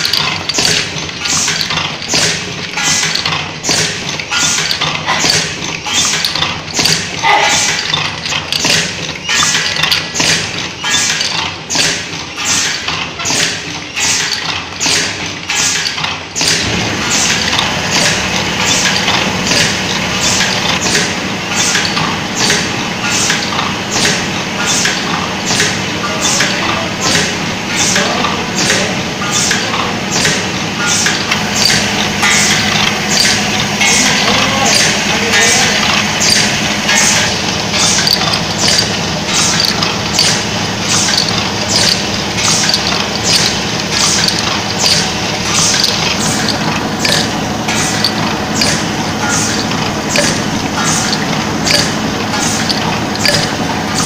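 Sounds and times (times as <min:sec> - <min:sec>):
machine humming: 0:00.0 - 0:54.0
pneumatic hisses: 0:10.2 - 0:17.4, 0:37.8 - 0:53.4.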